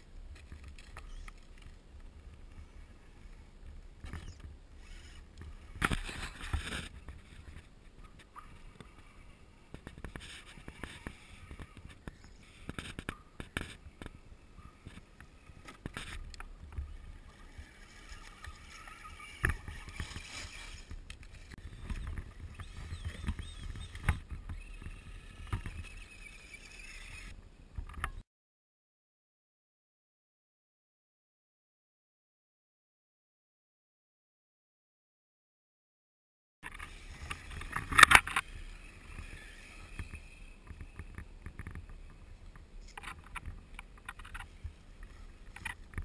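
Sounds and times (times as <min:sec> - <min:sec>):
sharp clicks and crackles: 0:00.0 - 0:02.1, 0:14.8 - 0:28.2, 0:36.6 - 0:46.0
faint motor whine: 0:00.0 - 0:28.0, 0:36.7 - 0:46.0.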